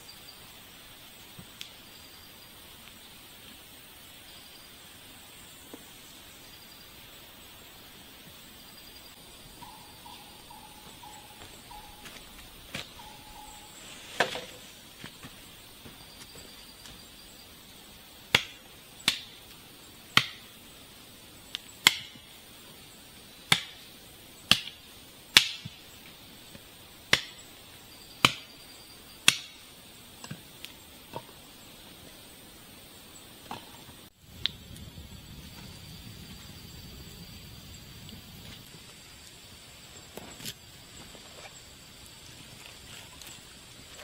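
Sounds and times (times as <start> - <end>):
forest insects droning: 0.0 - 44.0
wood being chopped: 18.3 - 19.4, 20.2 - 20.5, 21.8 - 22.2, 23.5 - 23.8, 24.5 - 25.8, 27.1 - 27.4, 29.2 - 29.6.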